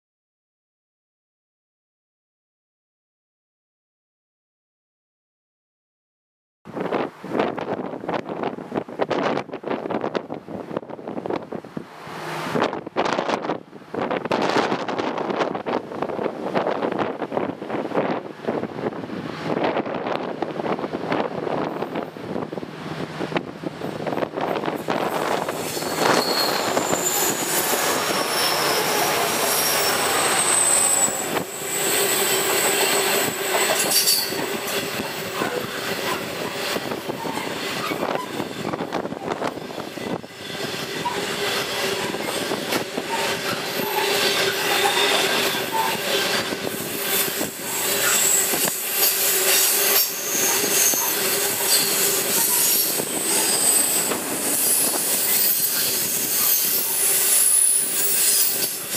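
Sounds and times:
wheels rumbling on rail: 0:06.7 - 0:58.9
locomotives passing: 0:15.4 - 0:58.9
wheel squeal: 0:25.1 - 0:58.9.

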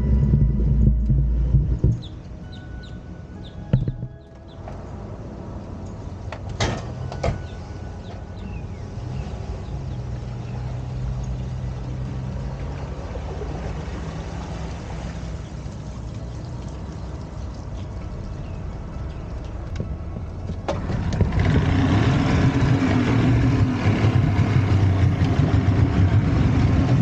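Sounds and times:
truck engine running: 0:00.0 - 0:27.0
truck door slamming: 0:06.5 - 0:07.6.

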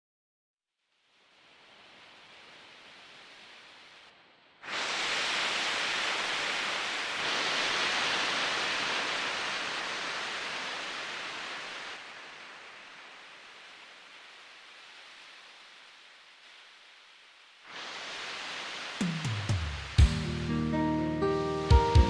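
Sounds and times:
rushing water: 0:00.9 - 0:20.5.

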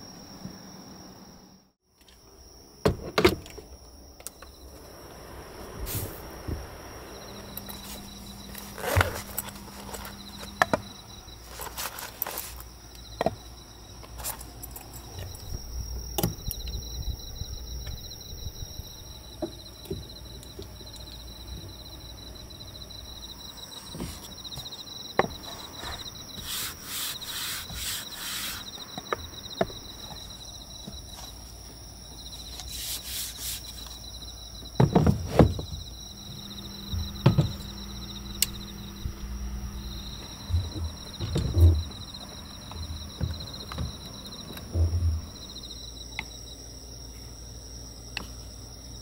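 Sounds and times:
crickets trilling: 0:00.0 - 0:49.0
board sliding on wooden table: 0:25.5 - 0:28.8.

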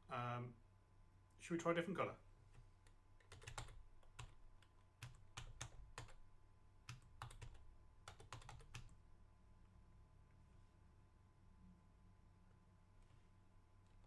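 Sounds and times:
faint keyboard typing: 0:02.5 - 0:06.2, 0:06.8 - 0:09.0.

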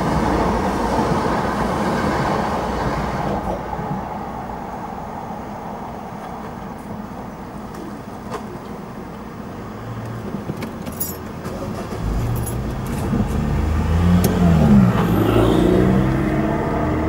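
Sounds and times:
car engines pulling away: 0:06.3 - 0:17.0.

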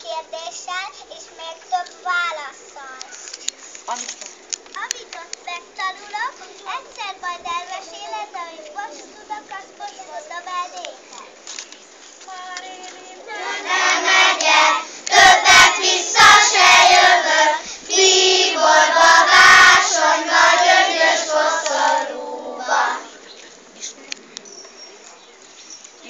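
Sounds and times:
young children singing: 0:12.3 - 0:23.2.

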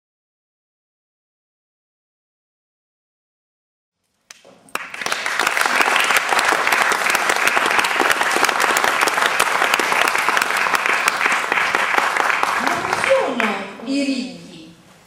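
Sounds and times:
audience applauding: 0:04.3 - 0:13.6.

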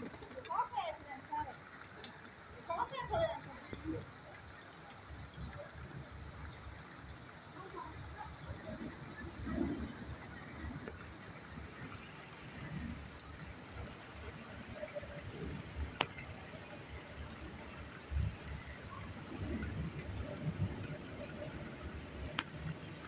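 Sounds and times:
steady rain falling: 0:00.0 - 0:23.0.

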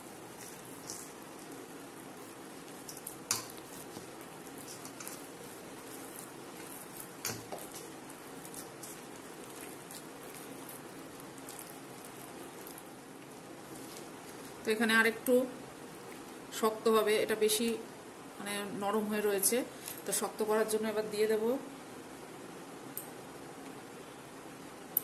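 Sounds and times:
hand kneading wet batter: 0:00.0 - 0:14.9
steady low hiss: 0:00.0 - 0:25.0.

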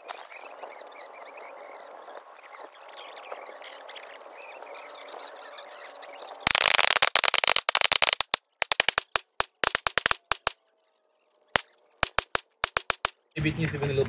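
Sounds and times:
sped-up rifle gunfire cracks: 0:06.5 - 0:10.6, 0:12.0 - 0:13.1.

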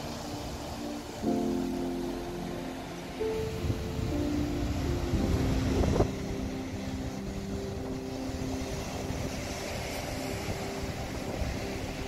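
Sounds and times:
faint low drone: 0:00.0 - 0:12.0
surf breaking on rocks: 0:00.0 - 0:12.0
wind on microphone: 0:02.6 - 0:12.0.

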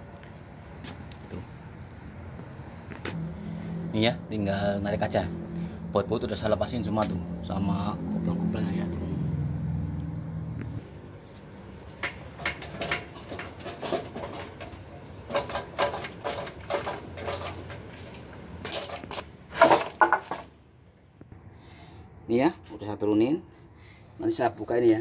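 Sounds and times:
low hum: 0:03.2 - 0:11.8
metal clinks and knocks: 0:11.2 - 0:20.5.

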